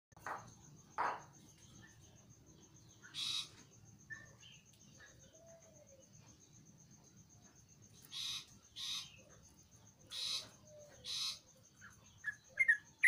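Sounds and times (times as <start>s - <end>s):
cricket chirping: 0.2s - 13.0s
bird calling: 3.0s - 6.1s, 8.0s - 9.4s, 10.0s - 13.0s.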